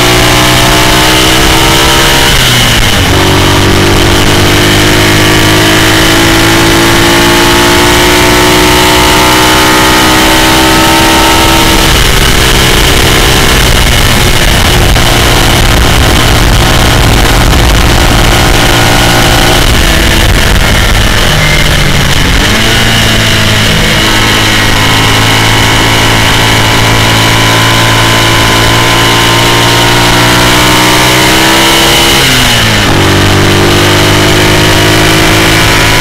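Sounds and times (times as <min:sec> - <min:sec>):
racing engine revving: 0:00.0 - 0:36.0
wind noise on microphone: 0:00.0 - 0:36.0.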